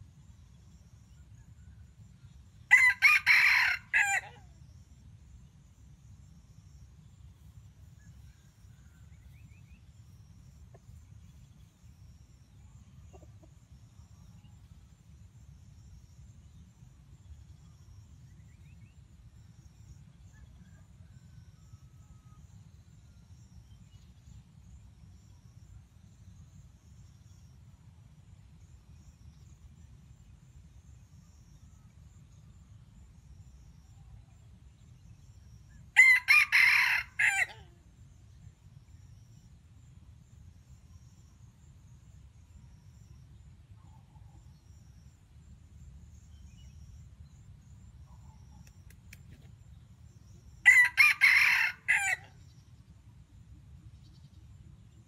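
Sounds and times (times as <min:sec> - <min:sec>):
rooster crowing: 0:02.7 - 0:04.4, 0:36.0 - 0:37.7, 0:50.6 - 0:52.3.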